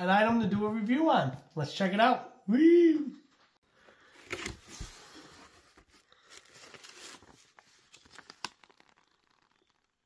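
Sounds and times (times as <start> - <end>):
paper and packing rustling: 4.2 - 9.8.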